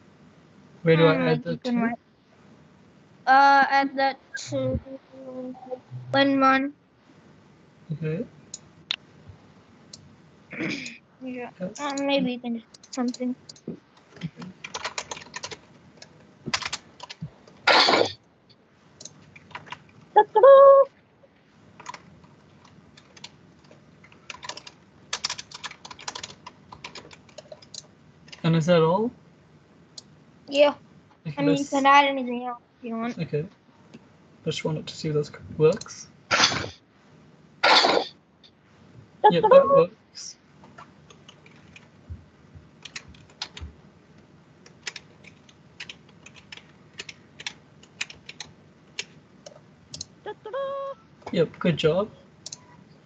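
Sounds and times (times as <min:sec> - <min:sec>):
typing on computer keyboard: 0:14.2 - 0:17.2, 0:19.0 - 0:19.9, 0:21.8 - 0:22.0, 0:22.6 - 0:28.4, 0:41.0 - 0:41.9, 0:42.8 - 0:43.7, 0:44.6 - 0:50.1.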